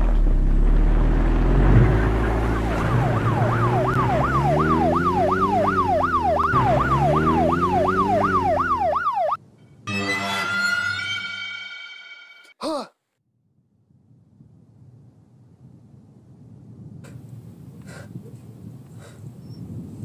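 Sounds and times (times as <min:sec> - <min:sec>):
low vehicle hum: 0:00.0 - 0:09.6
police siren yelping: 0:02.0 - 0:09.4.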